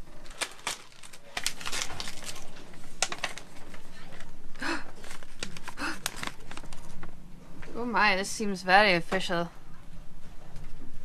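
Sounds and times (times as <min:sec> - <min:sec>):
paper rustling: 0:00.0 - 0:04.3, 0:04.9 - 0:07.1
plastic mailer crinkling and tearing: 0:00.0 - 0:04.3, 0:04.9 - 0:07.0.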